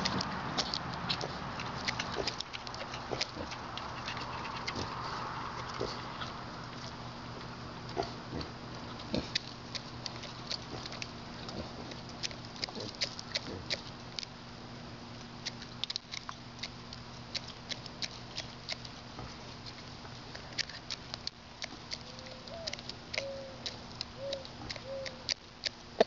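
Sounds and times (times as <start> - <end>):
rooster beak pecking clicks: 20.6 - 25.8.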